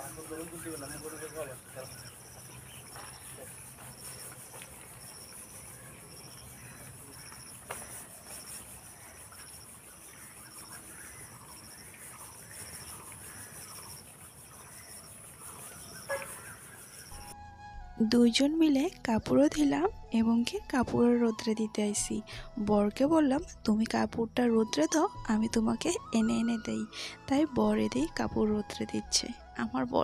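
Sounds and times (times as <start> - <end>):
high-pitched hiss: 0.0 - 17.4
insects chirping: 0.0 - 17.4.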